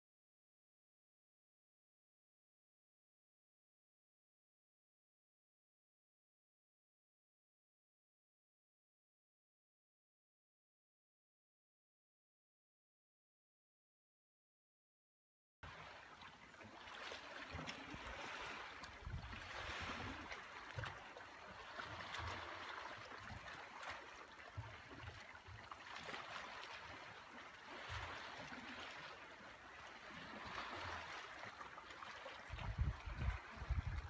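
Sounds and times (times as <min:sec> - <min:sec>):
small waves lapping against hull: 0:15.6 - 0:34.0.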